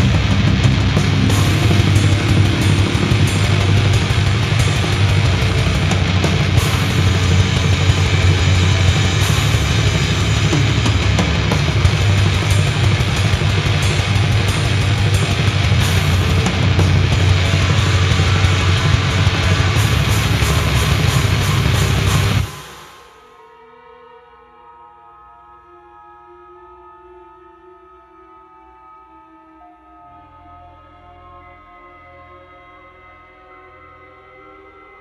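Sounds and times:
death metal music: 0.0 - 23.4.

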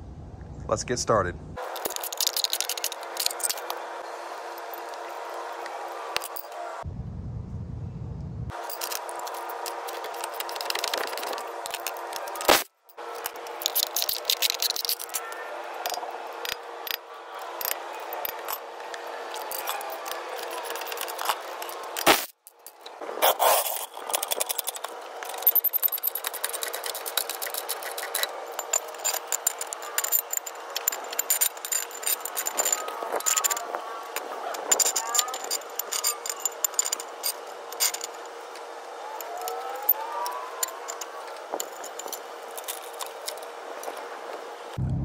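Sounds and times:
impact wrench rattling: 1.6 - 3.7, 8.6 - 15.2, 23.7 - 33.6.

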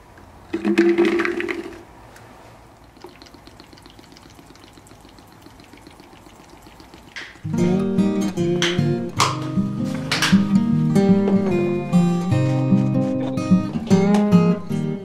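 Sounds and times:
water pouring onto berries: 2.8 - 7.5
acoustic guitar music: 7.4 - 15.0.

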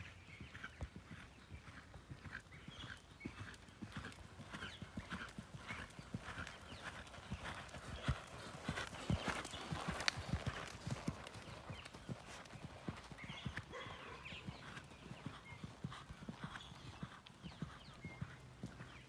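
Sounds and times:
horse hooves thudding on sand: 6.2 - 14.8.

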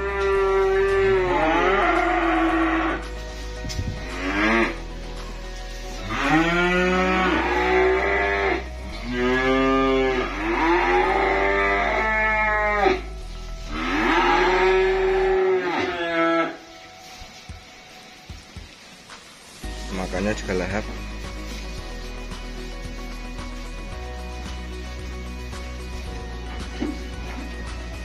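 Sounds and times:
calves mooing: 0.0 - 3.1, 4.0 - 4.8, 6.0 - 16.6.

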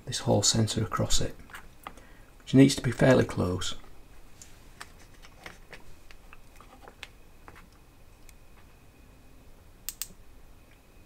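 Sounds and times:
spark plug snapping ticks: 9.9 - 10.2.

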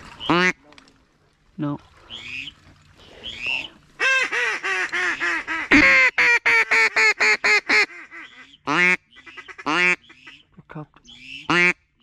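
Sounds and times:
duck call quacks: 0.2 - 0.6, 4.0 - 10.4, 11.2 - 11.8.

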